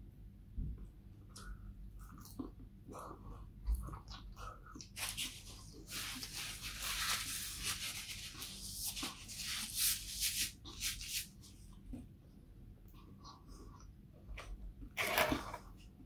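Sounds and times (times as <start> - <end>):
paper napkin rustling: 5.0 - 11.4.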